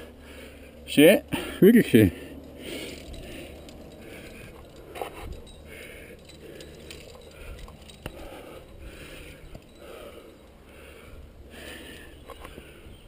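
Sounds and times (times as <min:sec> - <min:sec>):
person breathing hard: 0:00.0 - 0:13.0
gear clicking against rock: 0:02.4 - 0:09.8.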